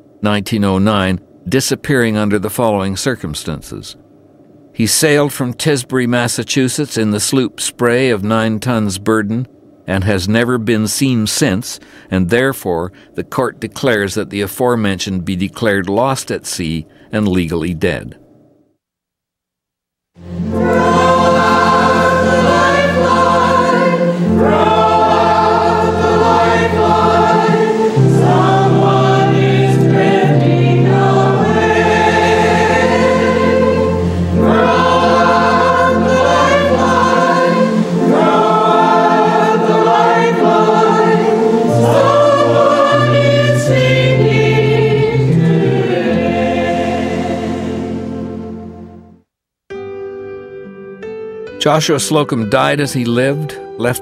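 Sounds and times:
choir singing long chords: 20.2 - 49.2.

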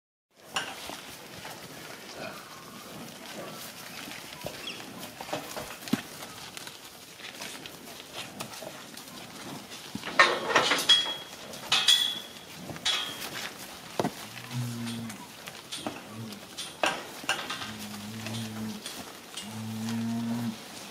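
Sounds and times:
cattle shuffling: 0.4 - 20.9
cattle clattering against steel panels: 2.8 - 20.9
metallic ring: 10.8 - 13.2.

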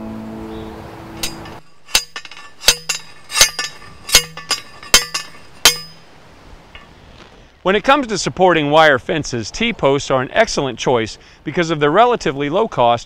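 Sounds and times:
post driver clanking on metal post: 1.2 - 6.0
post driver rattle: 1.2 - 6.0.

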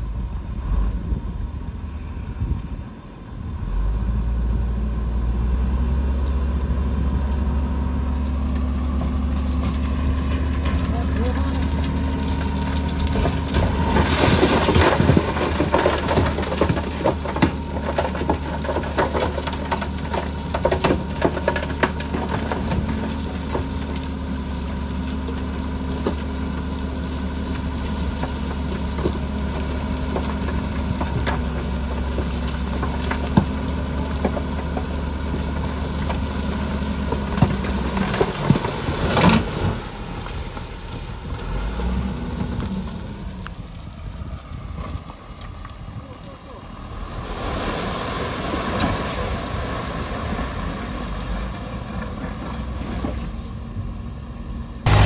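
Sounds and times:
heavy diesel machine running: 0.0 - 45.2, 45.9 - 55.0
crunching clatter: 6.2 - 44.0
clanks and knocks: 8.9 - 24.0.

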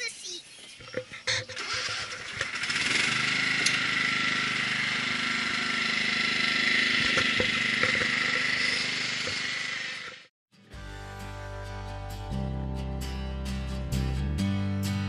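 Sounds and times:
small engine running: 1.3 - 10.3.

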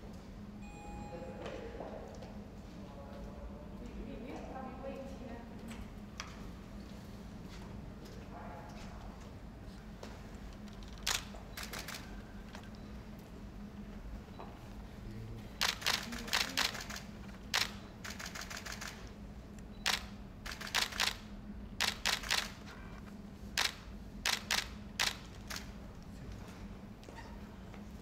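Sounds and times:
steady low hum: 0.0 - 28.0
camera shutters clicking: 10.7 - 12.7, 15.6 - 19.1, 19.8 - 21.2, 21.8 - 22.7, 23.6 - 25.7.

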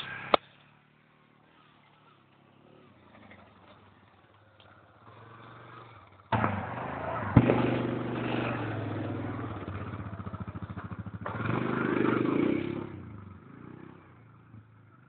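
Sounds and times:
quad bike engine revving: 4.9 - 15.0
sharp loud thud: 7.3 - 8.5.

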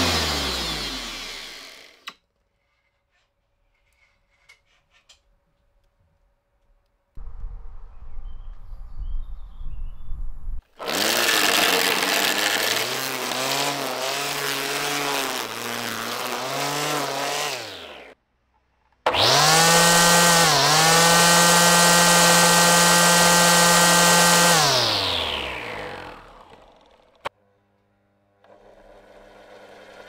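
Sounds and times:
electric string trimmer whining: 0.0 - 2.1, 10.7 - 18.2, 19.1 - 27.3.

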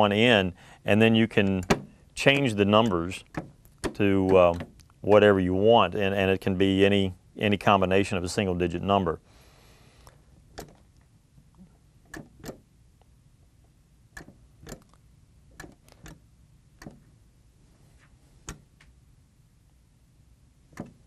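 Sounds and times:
vending machine buttons clicking: 10.5 - 10.8, 12.1 - 12.6, 14.1 - 16.2, 16.8 - 17.1, 20.7 - 21.0.

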